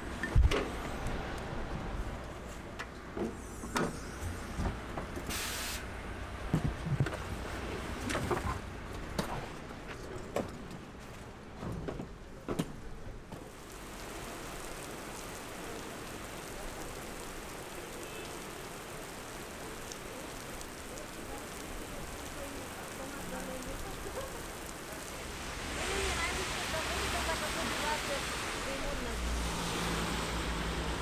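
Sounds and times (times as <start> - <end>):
rain on wet pavement: 0.0 - 2.8, 13.4 - 31.0.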